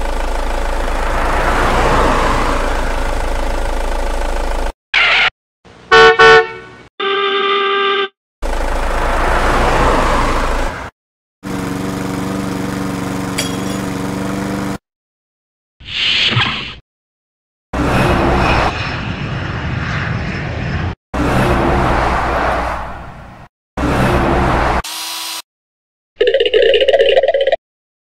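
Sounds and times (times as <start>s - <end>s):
vehicle engine rush: 0.0s - 4.8s, 8.4s - 14.8s, 17.8s - 24.8s
held horn-like tone: 5.9s - 8.1s
loud horn honk: 5.9s - 8.2s.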